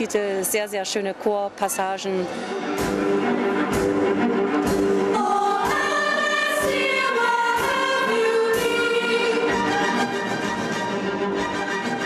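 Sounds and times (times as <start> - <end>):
orchestra playing: 2.2 - 12.0
choir singing sustained chords: 2.3 - 12.0
steady beat: 2.8 - 9.6.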